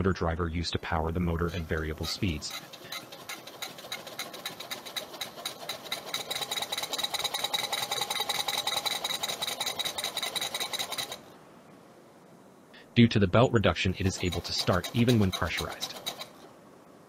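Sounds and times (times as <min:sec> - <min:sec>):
air compressor pumping: 0:01.5 - 0:11.2, 0:14.0 - 0:16.5.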